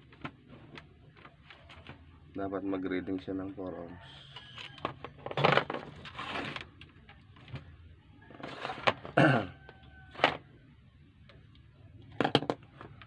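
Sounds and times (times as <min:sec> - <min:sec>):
scrape on workbench: 0:06.0 - 0:06.6, 0:08.4 - 0:09.0.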